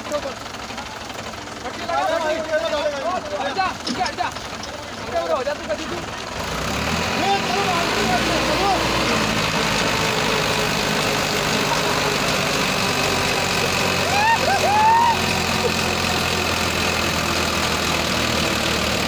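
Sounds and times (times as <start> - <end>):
tractor diesel engines under load: 0.0 - 19.0
people shouting: 12.9 - 16.5.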